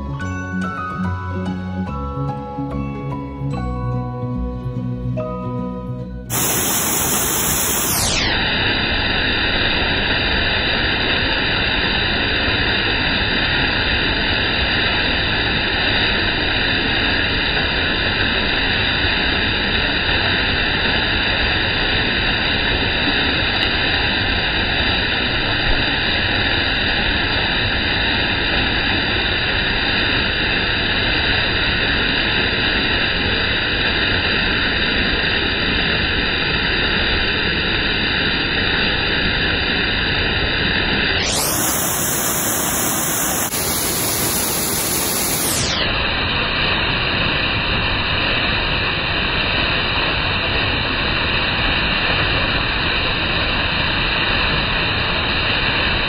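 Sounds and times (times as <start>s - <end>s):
waterfall rushing: 6.3s - 8.1s, 41.3s - 45.8s.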